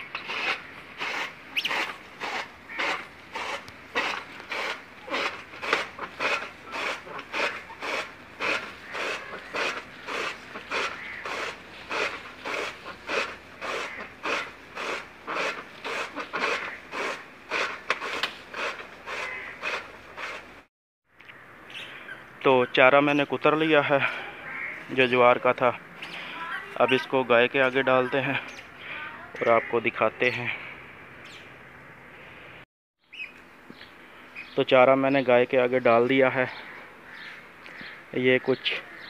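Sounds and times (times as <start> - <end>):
blade chopping stalks: 0.0 - 20.6.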